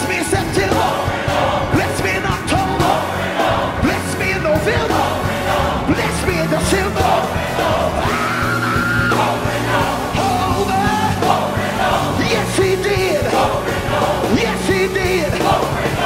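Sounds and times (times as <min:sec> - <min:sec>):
backing singers: 0:00.0 - 0:16.0
band playing a steady beat: 0:00.0 - 0:16.0
man singing into microphone: 0:01.7 - 0:02.8, 0:12.2 - 0:13.4, 0:14.3 - 0:15.4.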